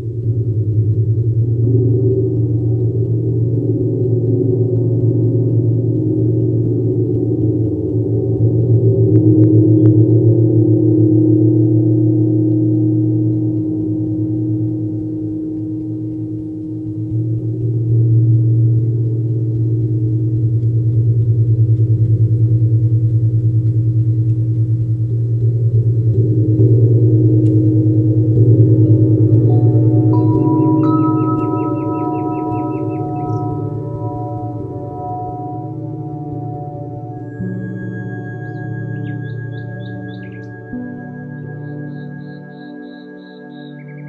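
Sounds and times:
gong deep pulsing hum: 0.0s - 44.0s
gong struck with soft mallet: 26.2s - 38.5s.

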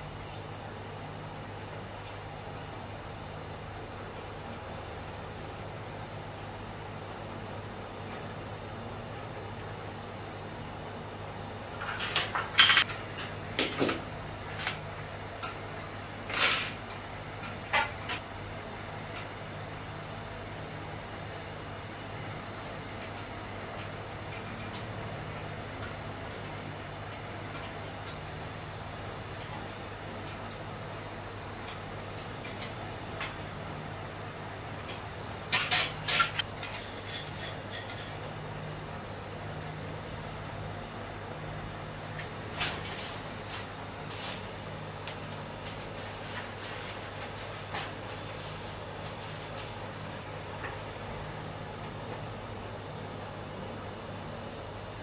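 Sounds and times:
steady low hum: 0.0s - 55.0s
metal clinks and rattles: 35.6s - 38.2s.

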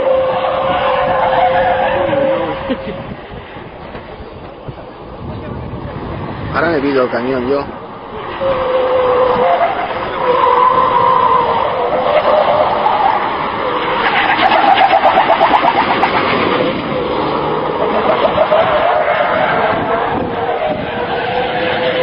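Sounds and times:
truck diesel engine revving: 8.0s - 22.0s.

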